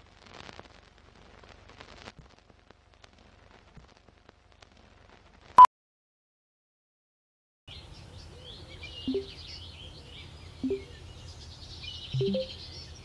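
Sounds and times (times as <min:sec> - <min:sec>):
low outdoor rumble: 0:00.0 - 0:05.6
songbirds chirping: 0:07.7 - 0:13.0.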